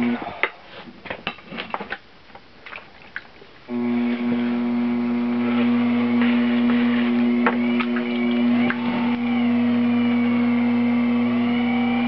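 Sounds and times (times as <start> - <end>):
potter's wheel motor humming: 0.0 - 0.3, 3.7 - 12.0.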